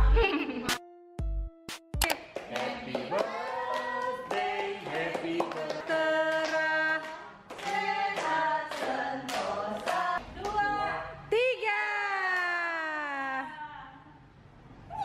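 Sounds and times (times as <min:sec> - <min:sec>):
hands clapping: 0:01.7 - 0:10.6
group of people singing together: 0:02.4 - 0:10.8.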